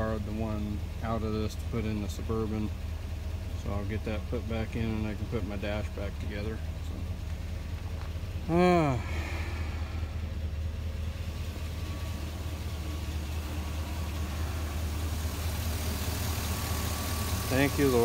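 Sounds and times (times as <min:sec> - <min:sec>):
pickup engine idling: 0:00.0 - 0:18.0.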